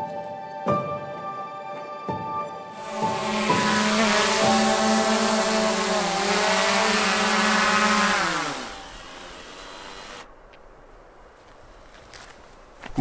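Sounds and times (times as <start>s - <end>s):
drone propellers whining: 2.8s - 10.3s.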